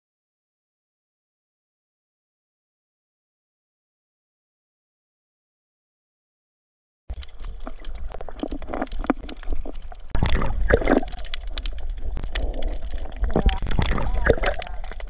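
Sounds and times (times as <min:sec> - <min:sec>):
water splashing and gurgling: 0:07.1 - 0:15.0.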